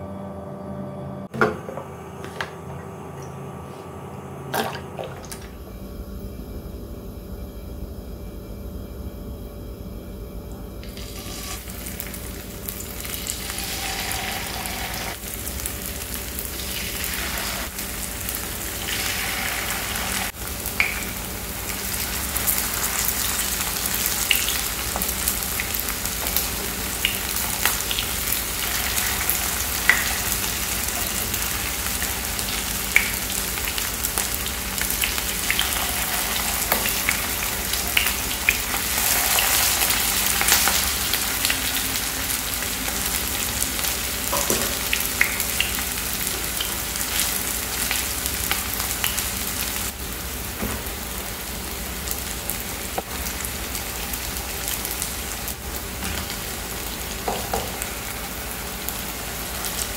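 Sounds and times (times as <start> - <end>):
oil sizzling in a pan: 10.8 - 59.9.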